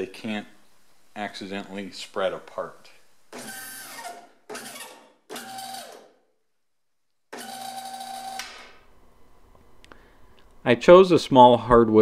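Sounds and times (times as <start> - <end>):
hydraulic pump motor humming: 3.3 - 6.1, 7.3 - 8.5.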